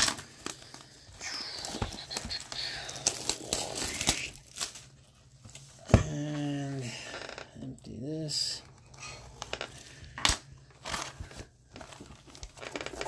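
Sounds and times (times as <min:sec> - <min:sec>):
plastic wrap tearing and crinkling: 0:00.0 - 0:05.7, 0:09.1 - 0:13.0.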